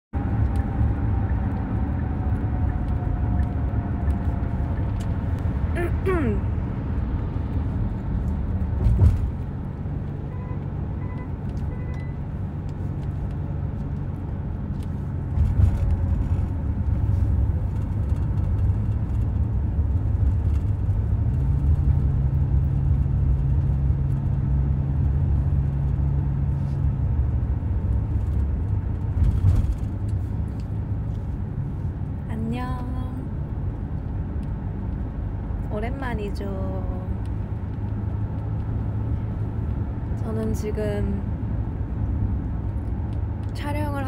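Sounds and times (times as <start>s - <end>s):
car engine and road noise: 0.1s - 44.0s
faint short beeps: 10.3s - 12.2s.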